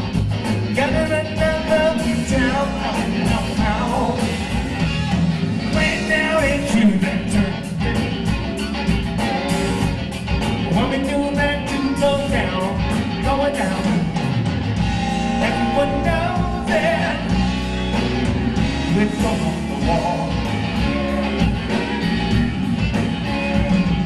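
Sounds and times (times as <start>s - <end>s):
bass: 0.0s - 24.0s
drum kit: 0.0s - 24.0s
electric guitar: 0.0s - 24.0s
person singing: 0.7s - 8.0s, 10.7s - 14.2s, 15.2s - 17.5s, 18.7s - 21.4s.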